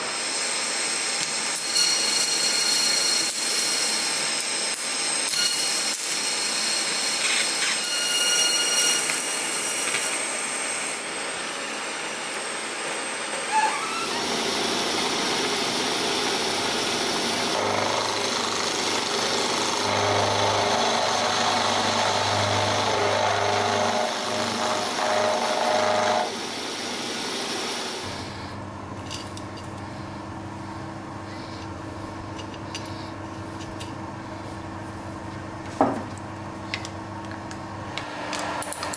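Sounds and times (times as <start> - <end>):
welding arc hissing and buzzing: 0.1 - 28.1
steady machine hum: 9.2 - 38.6
milling machine grinding metal: 13.4 - 28.0.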